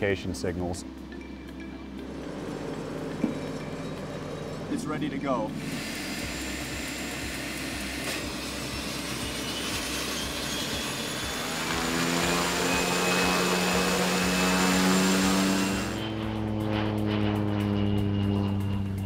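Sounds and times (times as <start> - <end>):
high turbine whine: 0.0 - 19.0
propeller hum: 0.0 - 19.0.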